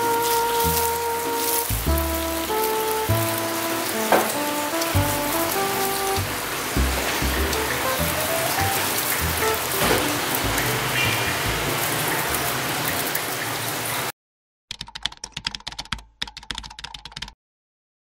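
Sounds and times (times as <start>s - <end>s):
crispy pastry crackling: 0.0s - 12.7s
keyboard typing clicks: 14.7s - 17.4s.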